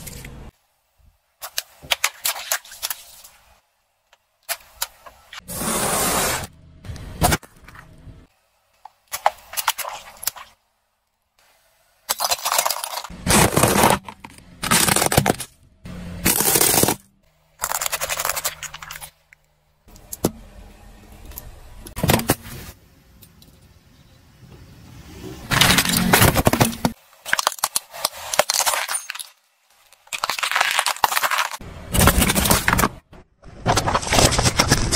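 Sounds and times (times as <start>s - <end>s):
tyres crushing plastic and cans: 12.1s - 15.6s, 16.2s - 19.3s, 25.5s - 34.9s.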